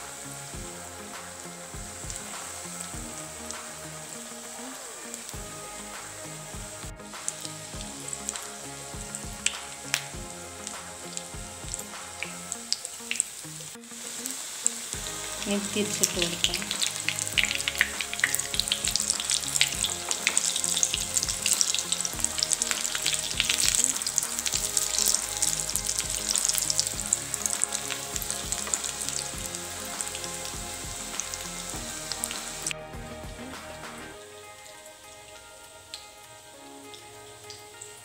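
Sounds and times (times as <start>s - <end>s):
cutlets sizzling in hot oil: 7.1s - 32.8s.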